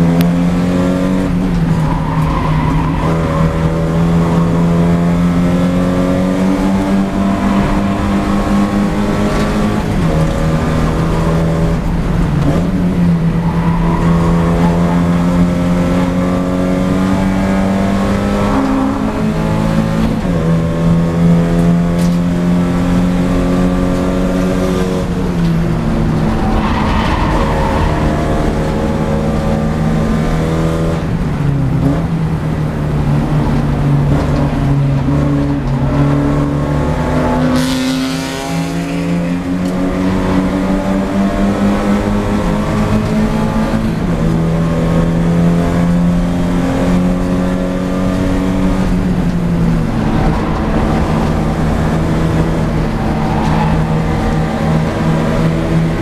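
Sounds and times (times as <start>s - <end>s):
race car engine running hard: 0.0s - 56.0s.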